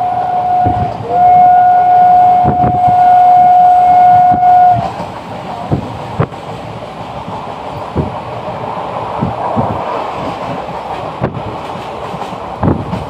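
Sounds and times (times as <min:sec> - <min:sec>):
train wind and rolling rumble: 0:00.0 - 0:13.0
wheels thudding on rail joints: 0:04.2 - 0:13.0.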